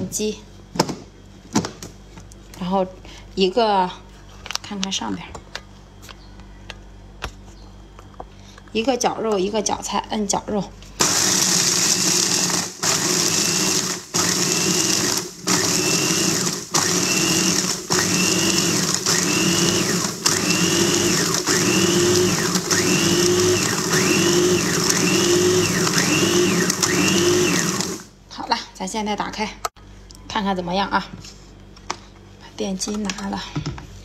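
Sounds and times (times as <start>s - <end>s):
food chopper motor crushing ice: 11.0s - 28.1s.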